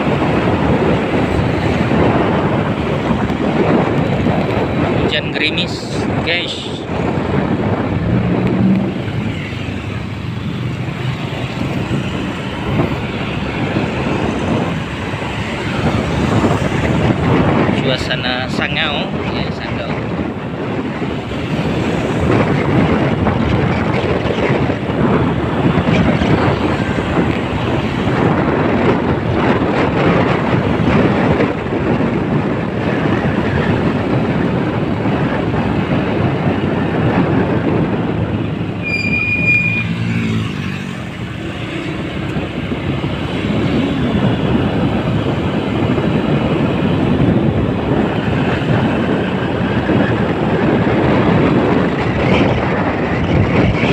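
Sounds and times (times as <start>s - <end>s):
wind and road noise: 0.0s - 53.9s
short high beep: 38.8s - 40.0s.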